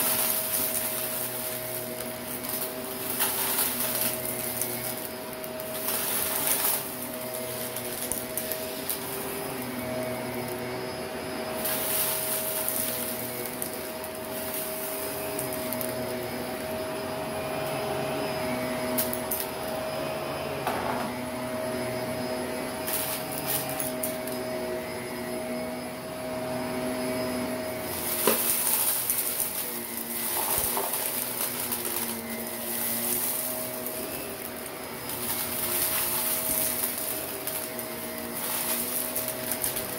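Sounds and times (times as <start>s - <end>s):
dirt crackling through vacuum: 0.0s - 17.2s, 27.3s - 39.9s
vacuum cleaner motor humming: 0.0s - 39.9s.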